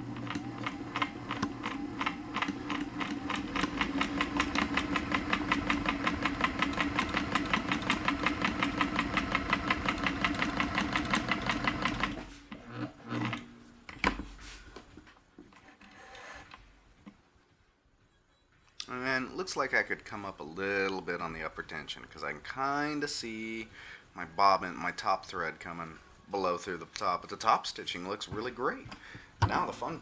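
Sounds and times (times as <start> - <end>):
sewing machine running: 0.0 - 13.5.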